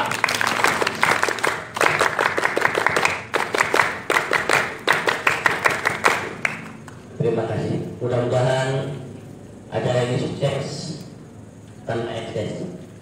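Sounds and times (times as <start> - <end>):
group applauding: 0.0 - 7.1.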